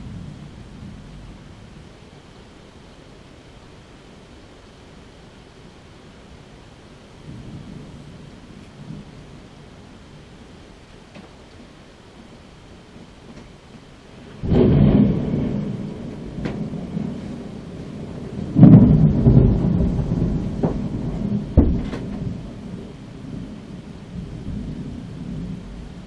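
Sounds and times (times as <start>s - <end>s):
thunder rumbling: 0.0s - 2.4s, 7.1s - 26.0s
steady rain: 0.0s - 26.0s
sharp thunder crack: 14.3s - 25.7s.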